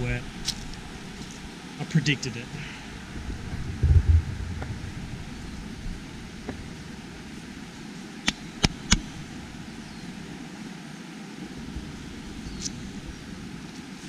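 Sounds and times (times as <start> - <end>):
low rumble: 3.0 - 7.2.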